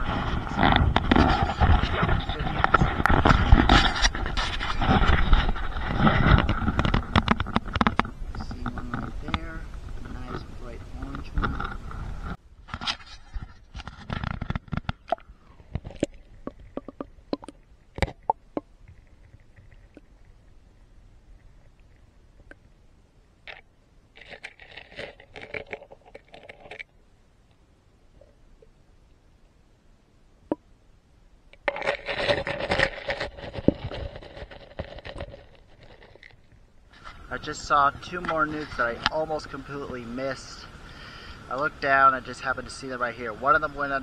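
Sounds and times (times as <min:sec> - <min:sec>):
underwater scraping and knocking: 0:00.0 - 0:20.4, 0:24.2 - 0:26.9, 0:31.5 - 0:40.0
faint steady hiss: 0:00.0 - 0:44.0
muffled camera clicks and knocks: 0:00.6 - 0:09.4.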